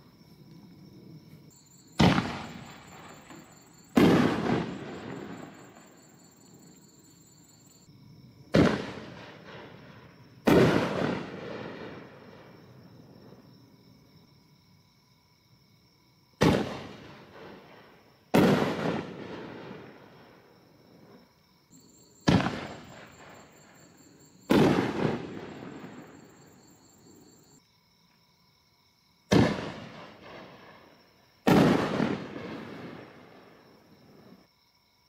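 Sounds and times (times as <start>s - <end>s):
firework mortar launch report: 1.9s - 6.0s, 8.5s - 12.5s, 16.4s - 20.4s, 22.2s - 26.4s, 29.3s - 34.4s.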